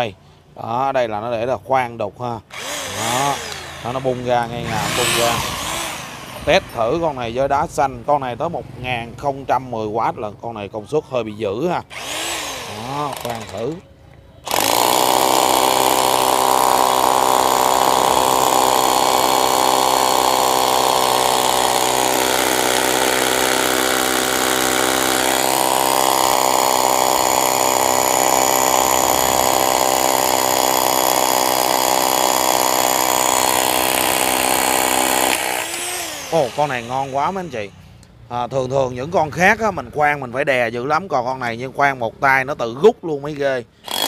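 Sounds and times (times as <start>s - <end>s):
rotary hammer drilling into stone: 2.5s - 7.2s, 11.9s - 13.8s, 14.4s - 37.8s.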